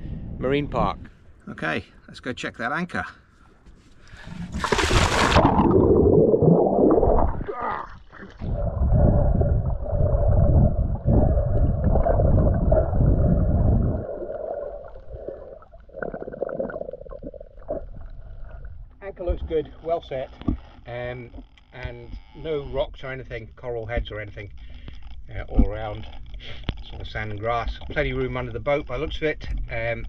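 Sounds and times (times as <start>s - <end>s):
muffled underwater rushing: 4.2s - 19.5s
splash into water: 4.4s - 6.0s.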